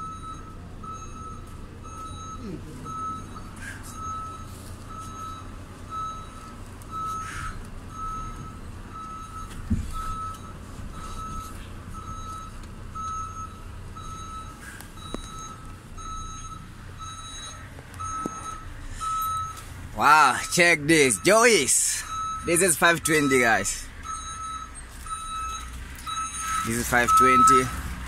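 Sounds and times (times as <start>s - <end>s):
diesel truck engine running: 0.0s - 28.0s
truck reversing alarm beeping: 0.0s - 28.0s
dull thump: 9.5s - 10.0s.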